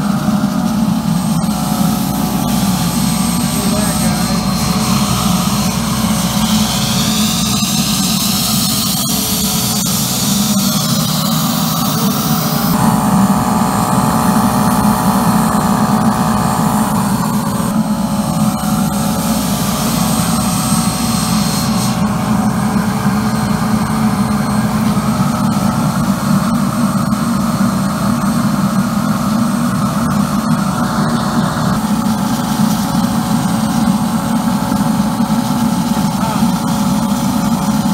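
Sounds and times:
boiler burner running: 0.0 - 37.9
steam hissing from nozzle: 1.5 - 22.3.

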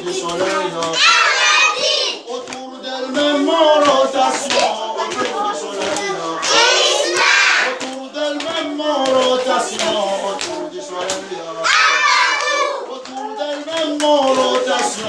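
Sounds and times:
hand claps: 0.0 - 1.0, 2.4 - 11.3, 12.3 - 15.0
children singing: 0.0 - 15.0.

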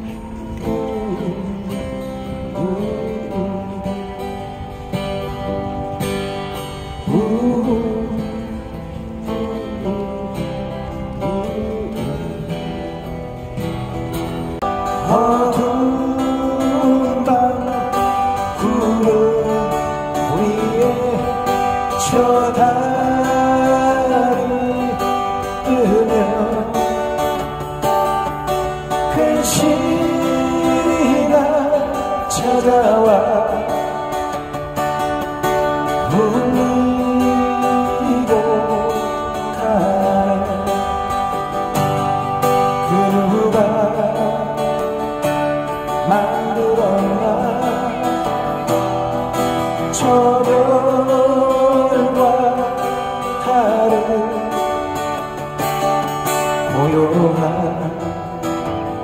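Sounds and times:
acoustic guitars strummed: 0.0 - 59.0
men singing into microphones: 7.0 - 12.8, 14.9 - 27.2, 29.0 - 34.1, 36.0 - 41.3, 42.7 - 45.0, 46.0 - 48.6, 49.8 - 54.9.

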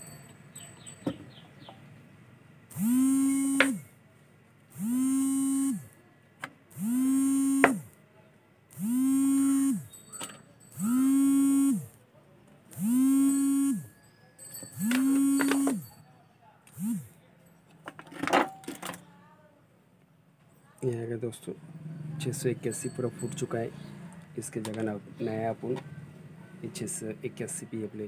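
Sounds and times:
horn-like alarm tone: 2.7 - 3.9, 4.8 - 5.9, 6.8 - 7.9, 8.8 - 9.9, 10.8 - 11.9, 12.8 - 13.9, 14.8 - 15.8.

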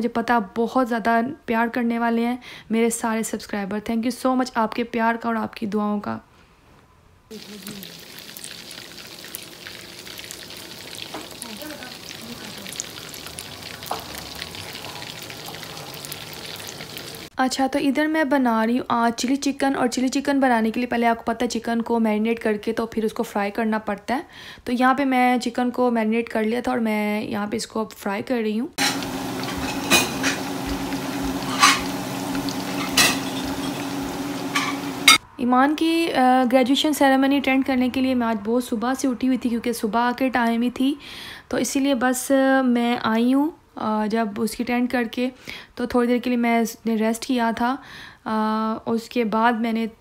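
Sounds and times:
chicken deep-frying in oil: 7.3 - 17.3, 28.8 - 35.2
strainer clinking against pan: 28.8 - 33.9, 34.5 - 35.2
low steady hum: 28.8 - 35.2.

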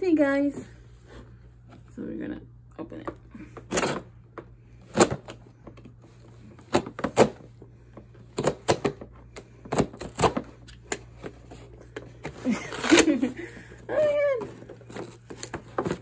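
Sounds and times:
cardboard box being cut open: 12.3 - 13.4.

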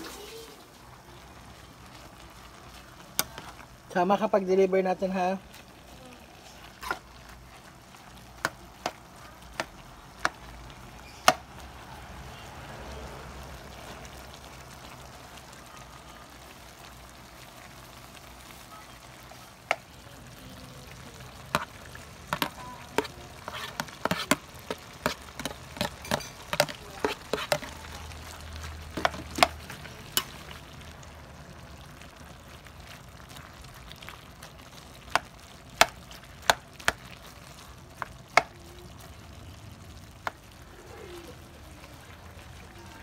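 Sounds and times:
food sizzling: 0.0 - 43.0
spatula scraping metal pan: 22.3 - 27.8.

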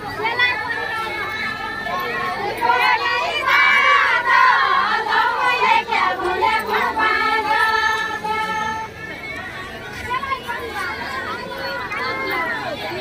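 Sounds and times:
group of women singing: 0.2 - 9.0.

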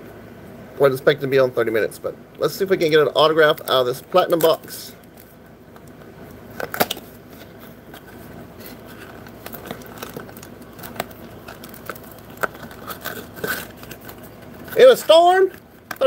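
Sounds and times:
foil pack crinkling and rustling: 2.9 - 16.0.

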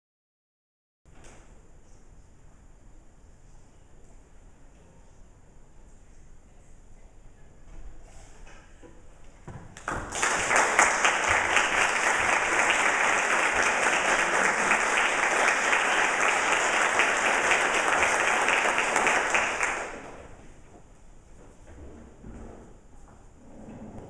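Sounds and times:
audience applauding: 9.8 - 20.4.

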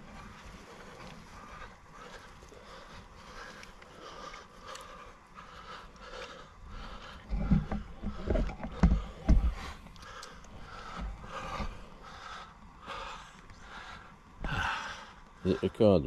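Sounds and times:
heavy breaths: 0.0 - 16.0
dull thumps: 7.3 - 9.8.

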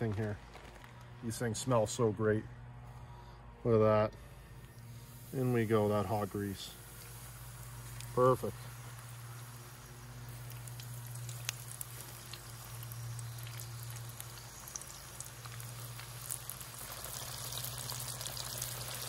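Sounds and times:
fish deep-frying in oil: 4.9 - 19.0.

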